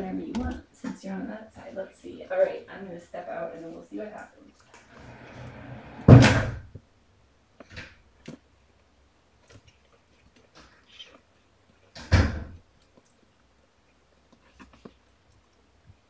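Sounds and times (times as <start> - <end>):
door thudding shut: 5.9 - 6.6, 12.0 - 12.6
rustling: 7.6 - 16.0.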